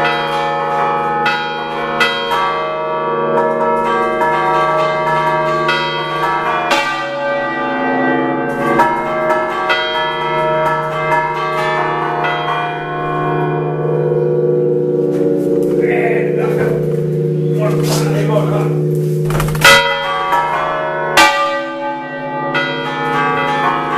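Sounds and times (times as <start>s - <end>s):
church bells rung by hand: 0.0s - 23.9s
sustained ringing hum: 13.0s - 20.7s.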